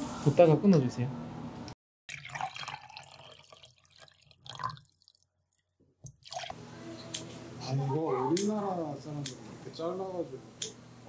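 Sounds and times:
liquid pouring into a glass: 2.1 - 6.6.

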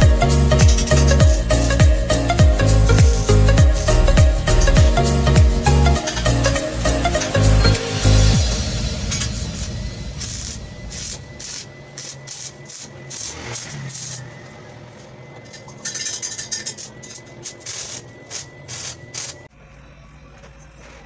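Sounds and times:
electric arc welding crackling: 0.0 - 5.0, 8.4 - 14.3, 15.8 - 19.5.

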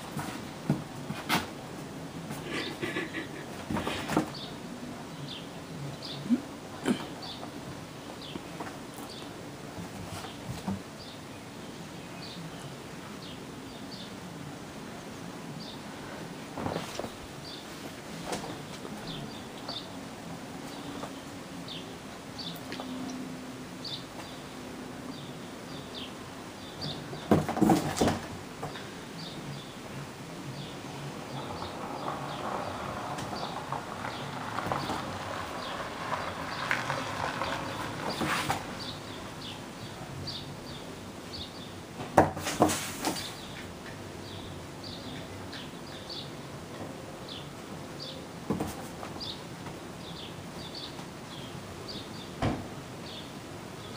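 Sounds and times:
kittens scuffling and thumping: 0.0 - 4.6, 8.2 - 11.1, 16.5 - 19.9, 26.8 - 28.8, 36.6 - 38.9, 42.0 - 43.6, 48.4 - 49.9
kitten paws scratching cardboard: 36.9 - 38.8.

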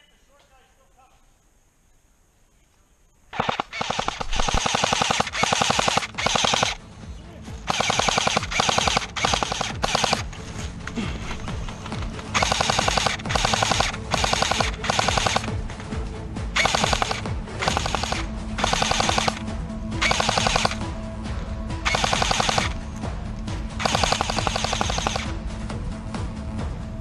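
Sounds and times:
airsoft rifle bursts: 3.3 - 6.8, 7.6 - 15.6, 16.5 - 20.8, 21.8 - 22.8, 23.8 - 25.3.

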